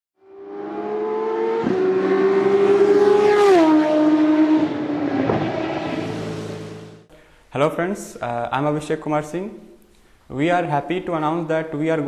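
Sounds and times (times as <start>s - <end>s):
racing car engine passing by: 0.2s - 7.1s.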